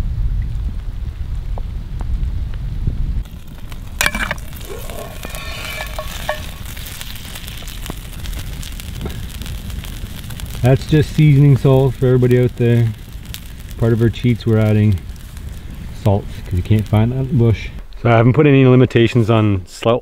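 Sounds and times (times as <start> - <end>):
wind rumble on microphone: 0.0 - 18.3
fire crackles: 0.0 - 20.0
meat sizzling over fire: 0.6 - 18.2
iron pot lid clanking: 4.0 - 7.0.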